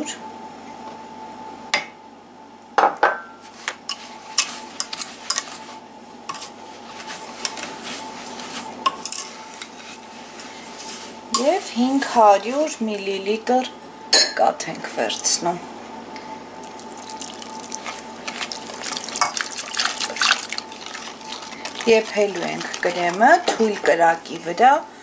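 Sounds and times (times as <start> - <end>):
whisk knocking against a pot: 18.2 - 24.5.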